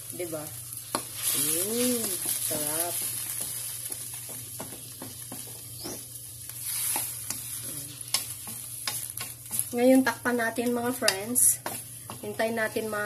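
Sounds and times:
sauce sizzling: 0:00.0 - 0:13.0
spatula knocking against wok: 0:03.0 - 0:05.7, 0:10.9 - 0:13.0.

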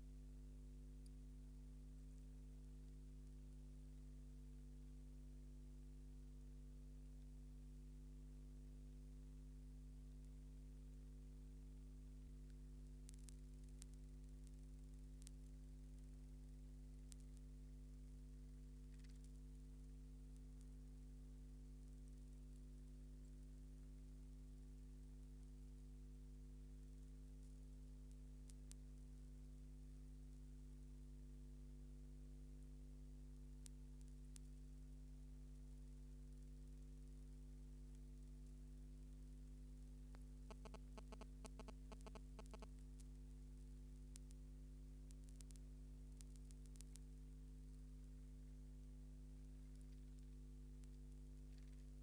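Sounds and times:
low electrical hum: 0:00.0 - 0:52.0
faint clicks: 0:12.5 - 0:16.1, 0:18.8 - 0:19.5, 0:33.6 - 0:34.6, 0:40.1 - 0:43.2, 0:44.1 - 0:44.4, 0:45.0 - 0:47.1.

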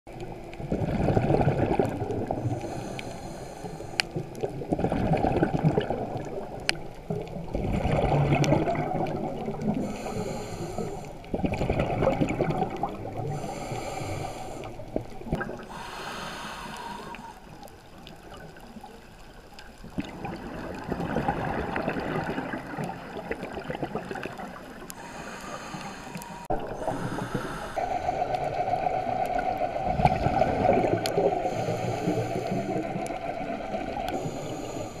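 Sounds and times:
exhaled bubbles gurgling underwater: 0:00.1 - 0:35.0
regulator inhalation hiss: 0:02.4 - 0:04.2, 0:09.8 - 0:11.2, 0:13.3 - 0:14.8, 0:15.7 - 0:17.5, 0:25.0 - 0:28.9, 0:31.3 - 0:33.0, 0:34.1 - 0:35.0.

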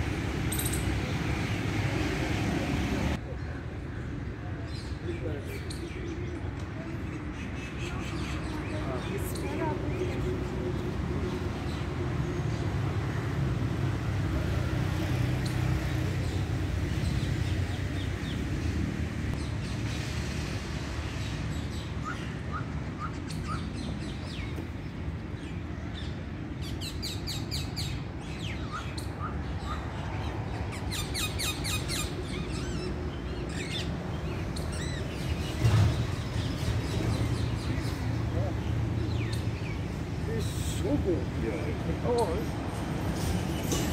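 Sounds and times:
parakeets chirping and screeching: 0:25.4 - 0:38.2.

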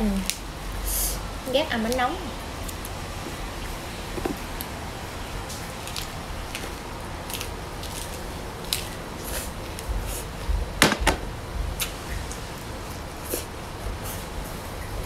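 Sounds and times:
close-up chewing: 0:05.4 - 0:10.7.

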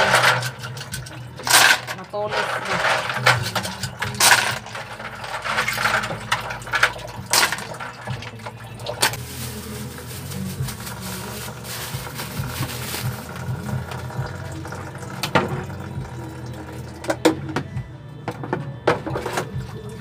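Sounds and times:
faucet running water: 0:00.0 - 0:09.2, 0:09.9 - 0:17.3
shells clattering in plastic basin: 0:00.0 - 0:14.3.

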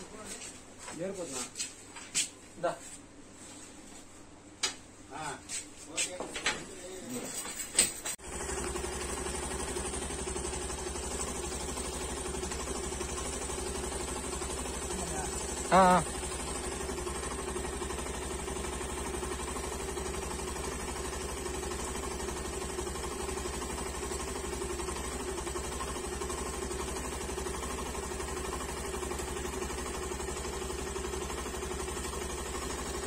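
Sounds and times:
vehicle engine idling: 0:08.2 - 0:33.0.

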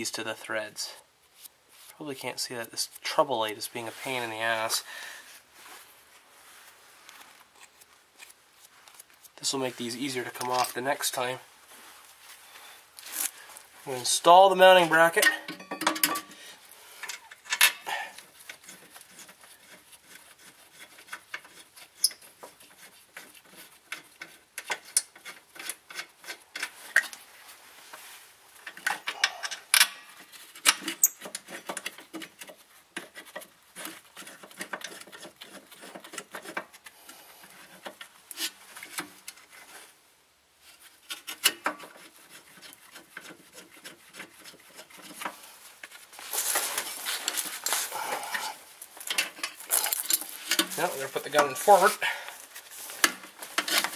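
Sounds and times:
metal clicks and scraping: 0:15.1 - 0:16.4, 0:17.0 - 0:27.2, 0:28.6 - 0:39.7, 0:40.8 - 0:51.9, 0:52.5 - 0:53.9.

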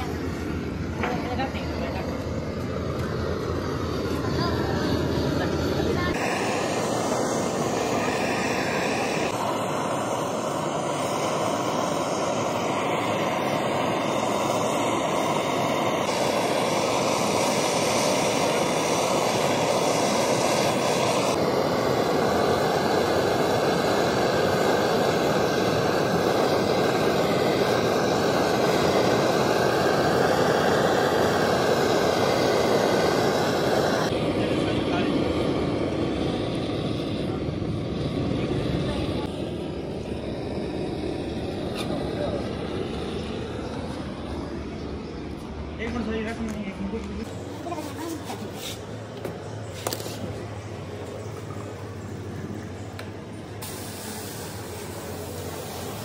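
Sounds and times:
loud machine noise: 0:00.0 - 0:56.0.

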